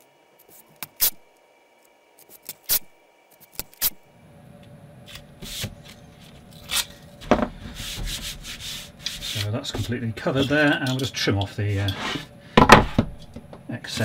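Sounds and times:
hands rubbing tape: 7.6 - 9.6.

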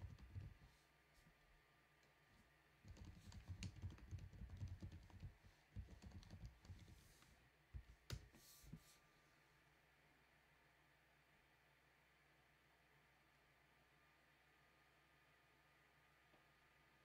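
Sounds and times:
faint keyboard typing: 0.0 - 0.7, 2.8 - 8.4.

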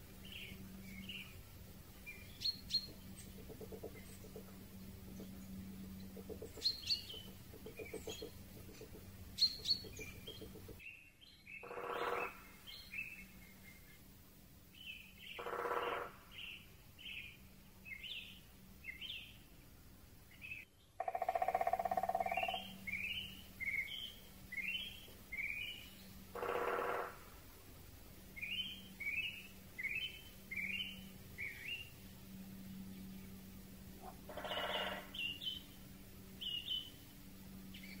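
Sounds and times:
small bird chirping: 2.1 - 4.5, 5.1 - 14.0, 20.3 - 26.7
raven croaking: 11.6 - 12.5, 15.4 - 16.4, 21.0 - 22.8, 26.3 - 27.4, 34.0 - 35.2.

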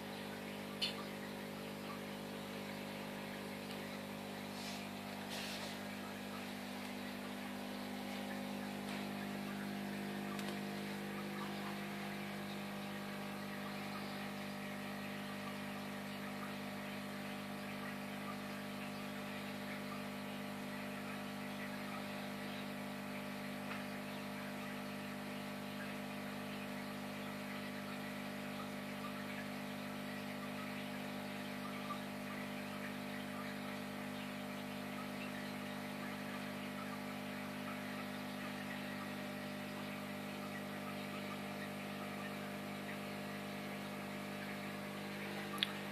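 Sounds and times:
air bubbles hissing: 0.0 - 22.4
aquarium equipment hum: 0.0 - 45.9.

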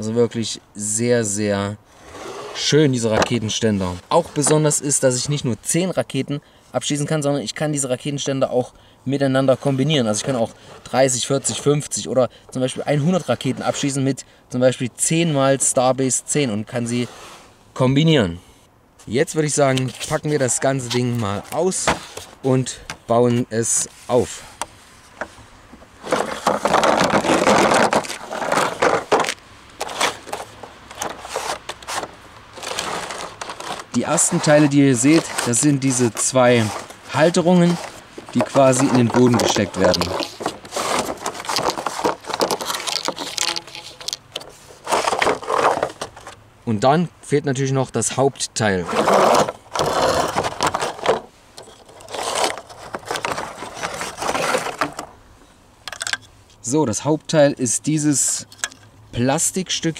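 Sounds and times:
plastic scraping against cardboard: 2.0 - 4.8, 9.6 - 11.9, 12.6 - 14.0, 19.7 - 22.6, 23.8 - 46.4, 48.8 - 55.2
short scrapes and knocks: 2.0 - 4.8, 19.7 - 23.0, 23.9 - 46.4, 48.8 - 55.1.

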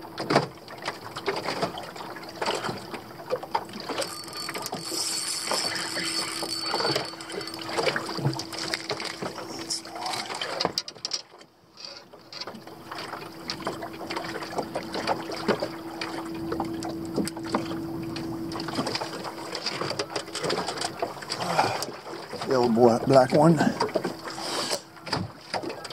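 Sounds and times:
steady hum: 1.9 - 10.8, 12.6 - 22.2
fishing gear clicking and knocking: 3.5 - 13.8, 14.4 - 22.0.

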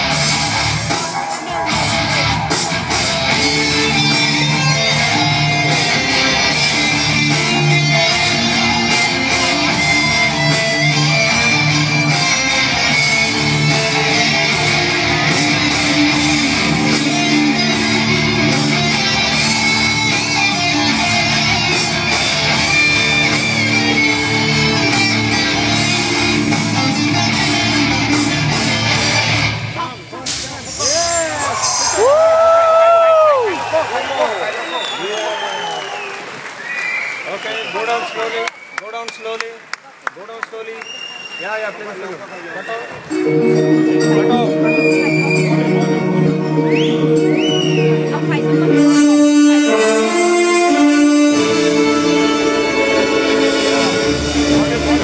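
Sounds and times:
guitar-led rock music: 0.0 - 30.1, 43.1 - 55.0.

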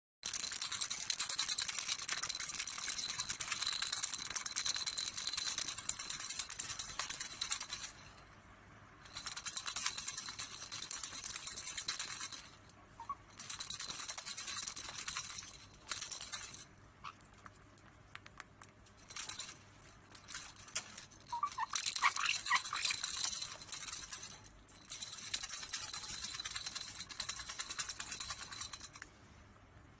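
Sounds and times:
parrot shaking rattle toy: 0.2 - 8.4, 9.0 - 29.2.

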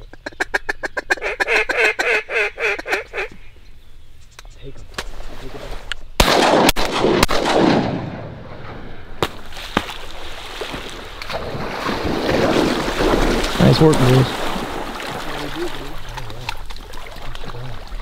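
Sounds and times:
shotgun blasts: 6.2 - 9.8.

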